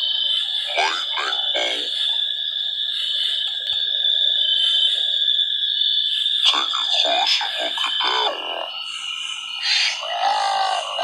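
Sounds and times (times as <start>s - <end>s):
high-pitched insect trill: 0.0s - 11.0s
pulsing chirp: 6.4s - 11.0s.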